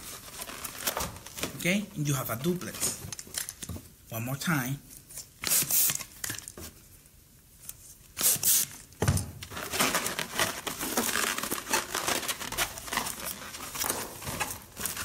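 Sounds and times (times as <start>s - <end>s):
balloons squeaking and crinkling: 0.0s - 3.6s, 9.5s - 15.0s.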